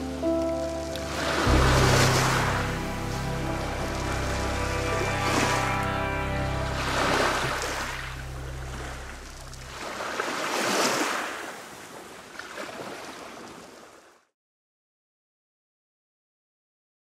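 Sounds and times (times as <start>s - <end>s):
background music: 0.0s - 10.0s
lake waves washing onto shore: 0.0s - 14.2s.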